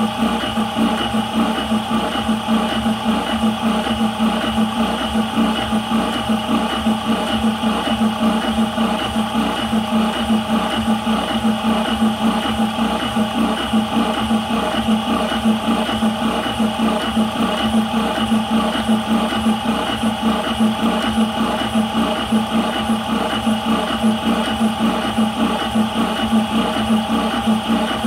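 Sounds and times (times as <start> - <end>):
air compressor pulsing hum: 0.0 - 28.0.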